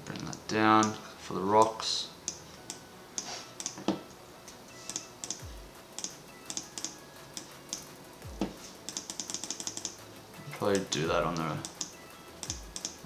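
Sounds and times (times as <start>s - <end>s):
computer keyboard keys clicking: 4.9s - 7.9s, 8.8s - 10.0s, 10.7s - 13.0s.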